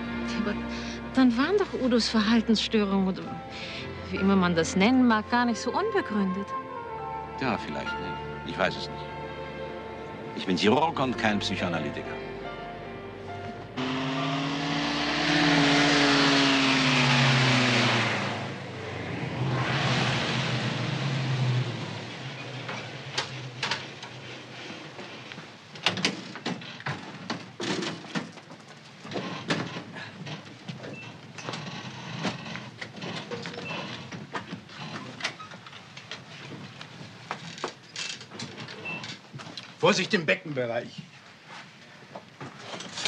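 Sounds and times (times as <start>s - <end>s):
van driving past: 0.0s - 25.7s.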